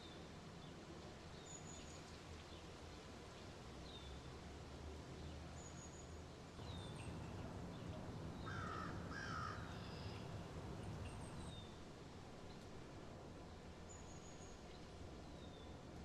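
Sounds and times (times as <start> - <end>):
harsh bird calls: 6.6 - 11.5
low steady rumble: 6.6 - 11.6.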